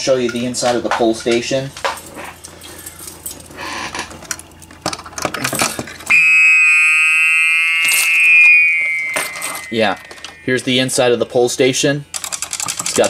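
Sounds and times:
low hum: 6.0s - 10.7s
fire alarm horn tone: 6.1s - 10.8s.

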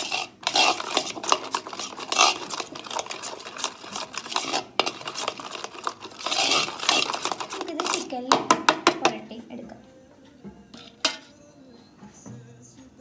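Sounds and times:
wet squishing of paste: 0.0s - 8.1s
fingers scraping metal pot: 0.0s - 9.2s, 10.8s - 11.3s.

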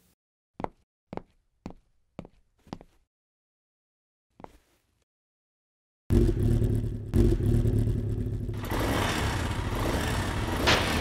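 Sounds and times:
motorcycle engine revving: 6.1s - 11.0s.

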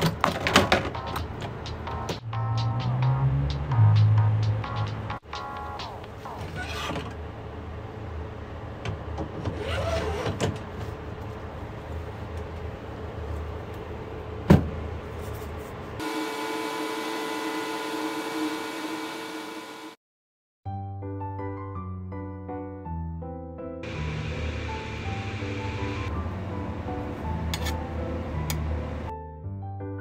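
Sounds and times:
multi-tone motor whine: 16.0s - 20.0s.

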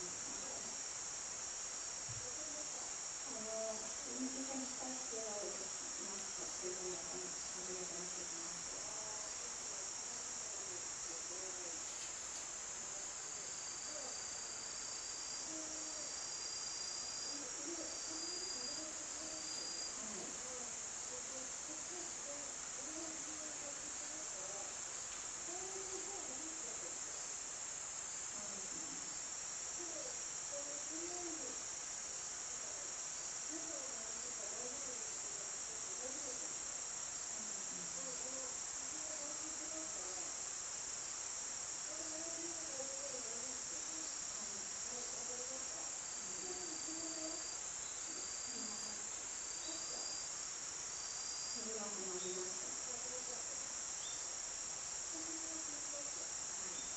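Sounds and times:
insects chorus: 0.0s - 56.9s
pulsing insect tone: 12.5s - 56.9s.

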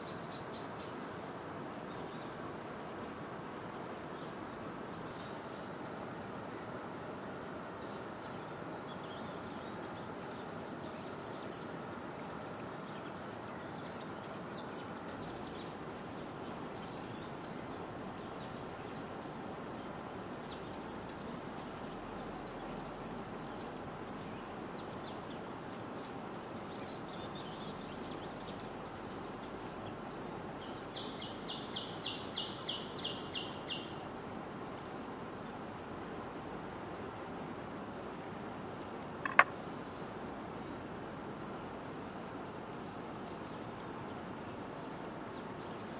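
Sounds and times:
flowing river water: 0.1s - 45.9s
bird chirping: 39.1s - 40.0s.

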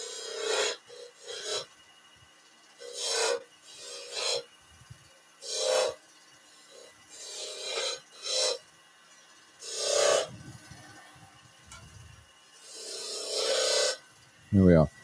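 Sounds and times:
chisel scraping spinning wood: 0.0s - 1.7s, 2.8s - 4.5s, 5.4s - 8.6s, 9.6s - 10.8s, 12.6s - 14.1s.

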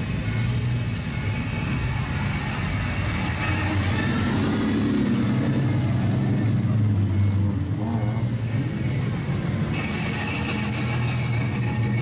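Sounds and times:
car engines deep exhaust note: 4.4s - 9.8s.

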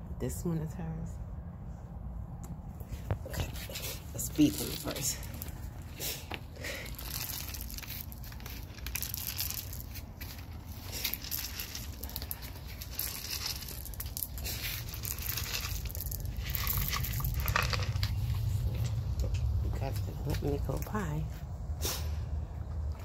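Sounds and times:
crinkly rustling: 2.9s - 19.1s
dry kibble rattling onto concrete: 3.4s - 21.0s.

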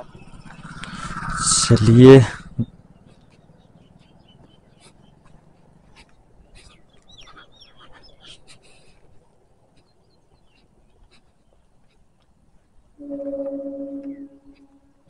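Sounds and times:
high bird chirps: 13.0s - 15.0s.

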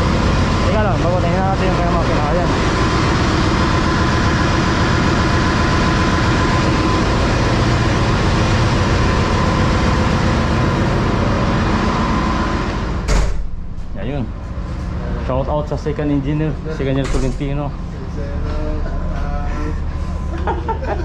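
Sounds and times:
engine room machinery roar: 0.0s - 21.0s
steady whine: 0.0s - 21.0s
heavy door thudding shut: 12.9s - 13.7s.

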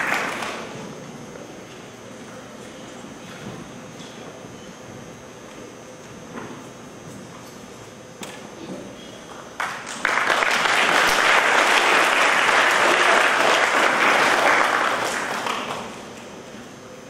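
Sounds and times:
audience applauding: 0.0s - 0.7s, 9.6s - 16.1s.

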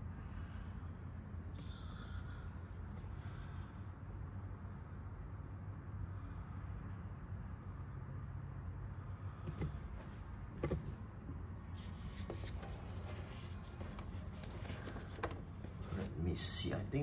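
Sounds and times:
steady low hum: 0.0s - 17.0s
soft clicks and rustles of packaging: 11.9s - 16.0s.

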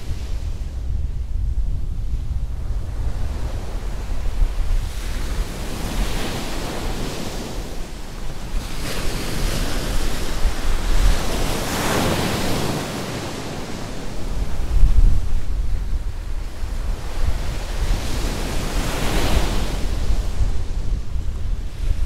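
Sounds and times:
wind rumbling on microphone: 0.0s - 22.0s
sea waves washing onto beach: 2.8s - 22.0s.

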